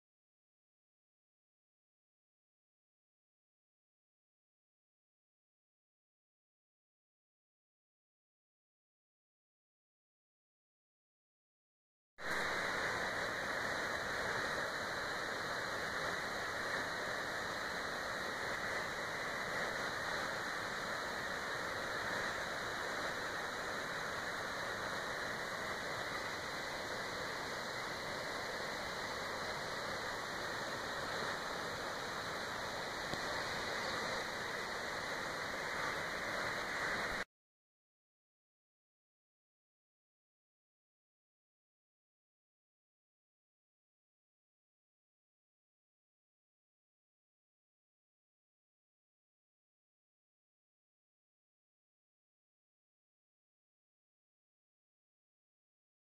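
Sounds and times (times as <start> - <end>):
waterfall rushing: 12.2 - 37.2.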